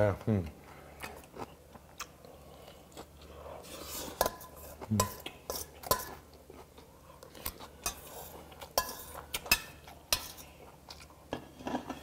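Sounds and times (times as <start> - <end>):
metal spoon scraping steel bowl: 3.6 - 6.1.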